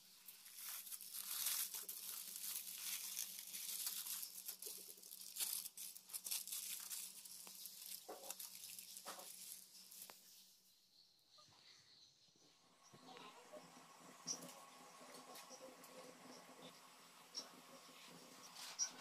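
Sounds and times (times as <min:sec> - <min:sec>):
aluminium foil crinkling: 0:00.0 - 0:10.4.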